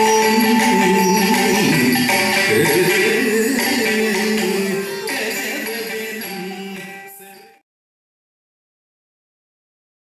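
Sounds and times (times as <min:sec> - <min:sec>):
long held note: 0:00.0 - 0:03.4
classical indian music: 0:00.0 - 0:07.6.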